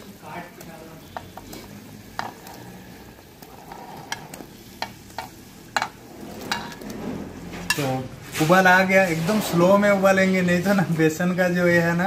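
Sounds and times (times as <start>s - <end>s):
gravy bubbling: 0.0s - 7.6s.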